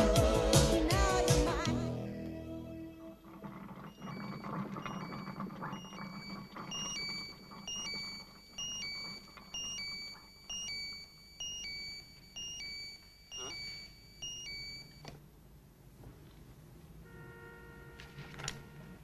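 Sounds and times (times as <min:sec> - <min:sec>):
coffee maker gurgling: 0:00.1 - 0:10.5
electronic alarm beeping: 0:03.7 - 0:15.1.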